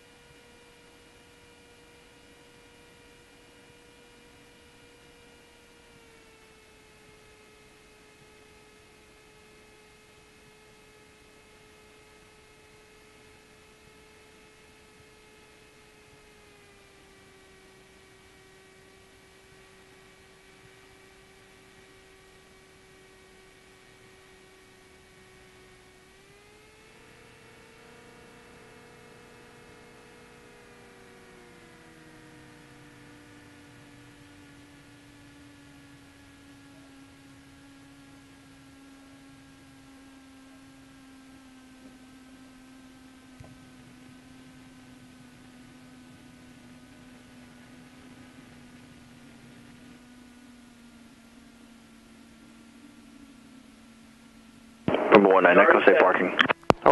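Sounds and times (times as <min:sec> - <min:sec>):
small plane engine hum: 0:00.0 - 0:56.9.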